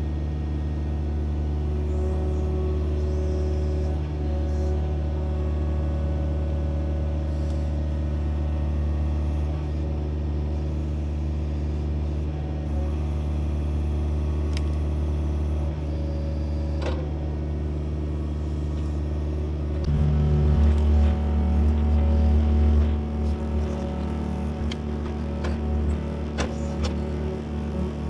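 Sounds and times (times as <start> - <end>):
excavator diesel engine running: 0.0 - 28.0.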